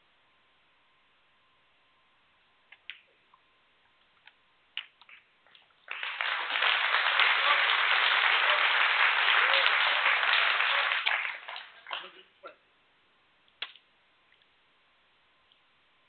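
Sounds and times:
audience applause: 0:05.9 - 0:12.2.

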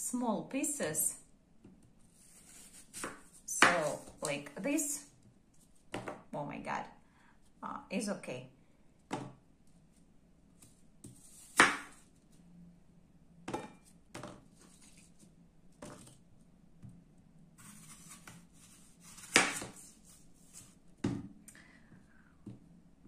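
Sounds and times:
knife scraping: 0:02.1 - 0:04.3, 0:10.6 - 0:12.0, 0:17.6 - 0:20.8.

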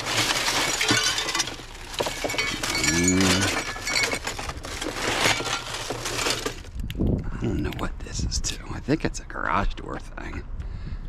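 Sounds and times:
steel scrap clinking: 0:00.0 - 0:06.7.

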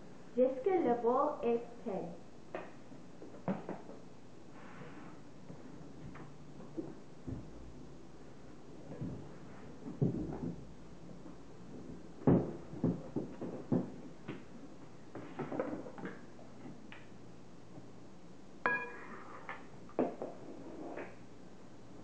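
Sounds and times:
ringing glass clink: 0:18.6 - 0:19.1
spoons knocking on bowls: 0:18.7 - 0:19.1.

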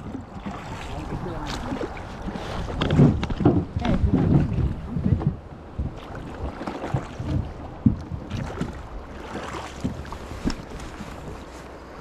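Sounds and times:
water lapping and splashing: 0:00.0 - 0:12.0
fish thrashing at water surface: 0:05.9 - 0:11.4.

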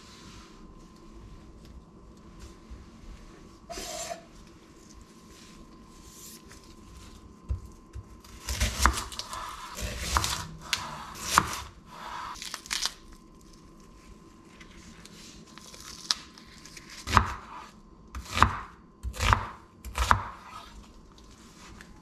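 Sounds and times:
knife slicing onion on board: 0:03.7 - 0:04.3, 0:07.4 - 0:12.3, 0:16.9 - 0:20.8.

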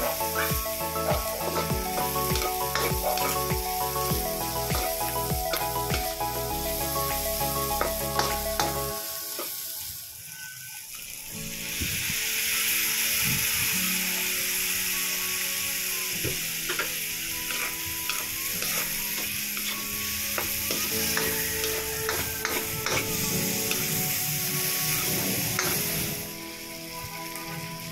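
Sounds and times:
spatula scraping a pan: 0:00.0 - 0:03.5, 0:16.7 - 0:26.2
food sizzling in a wok: 0:00.0 - 0:27.9.

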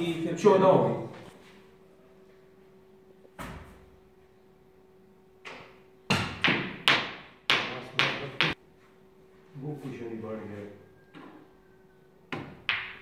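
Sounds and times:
cue striking ball: 0:12.3 - 0:13.0.

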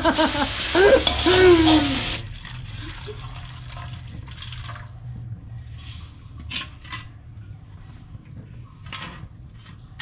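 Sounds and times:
metal ladle scraping a wok: 0:00.8 - 0:02.2.

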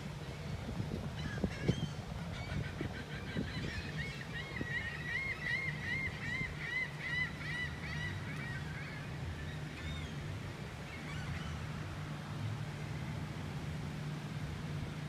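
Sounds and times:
low steady hum: 0:00.0 - 0:15.0
gull calling: 0:01.2 - 0:10.1.

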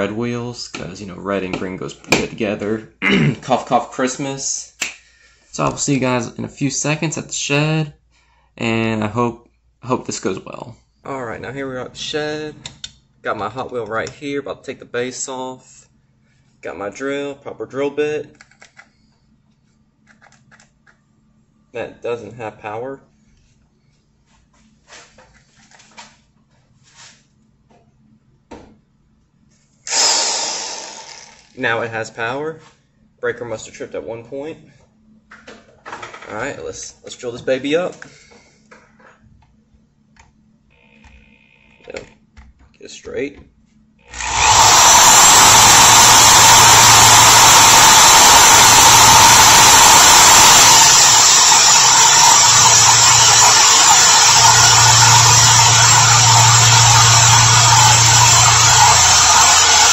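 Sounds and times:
power drill running: 0:29.8 - 0:31.6, 0:44.1 - 0:59.9.

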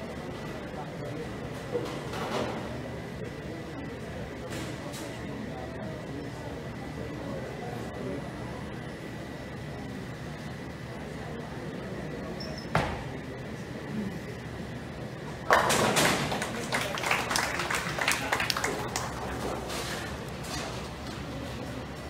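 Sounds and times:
bowling pins crashing and clattering: 0:15.5 - 0:16.4.

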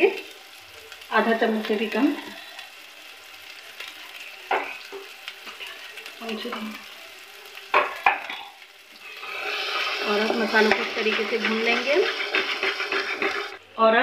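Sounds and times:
paste sizzling in a pan: 0:00.0 - 0:13.8
metal spoon scraping a pan: 0:07.8 - 0:13.6.

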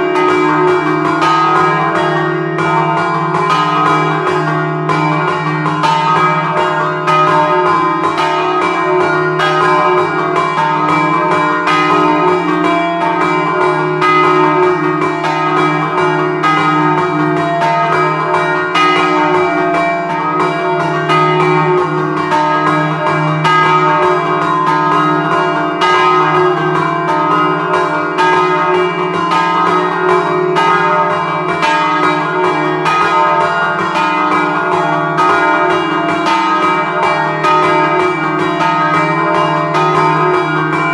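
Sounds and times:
church bells struck by hand: 0:00.0 - 0:40.9.

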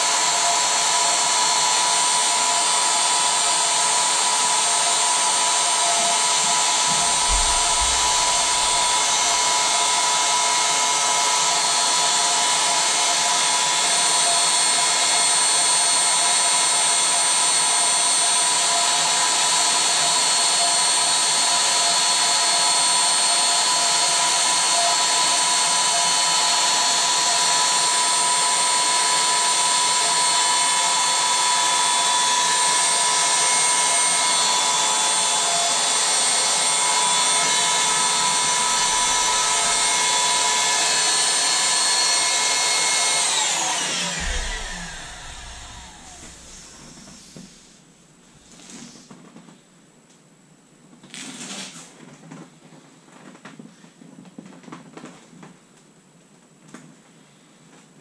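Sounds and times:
electric air pump whining: 0:00.0 - 0:47.8
low thud: 0:06.9 - 0:09.4, 0:44.2 - 0:47.6.

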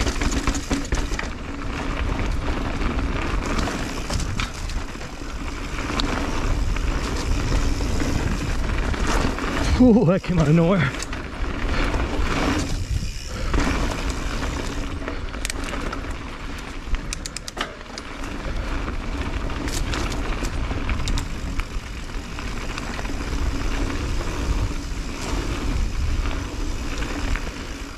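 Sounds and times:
bike clicks and rattles: 0:00.0 - 0:27.9
tyres rolling on dirt trail: 0:00.0 - 0:27.9
wind rushing over microphone: 0:01.9 - 0:15.1, 0:18.5 - 0:27.5.

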